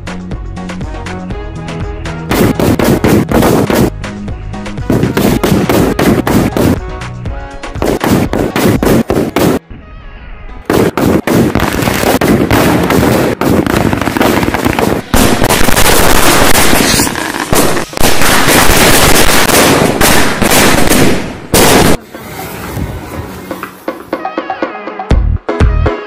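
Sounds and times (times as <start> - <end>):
firecrackers crackling: 2.3 - 3.9, 4.8 - 6.8, 7.8 - 9.6, 10.7 - 24.0.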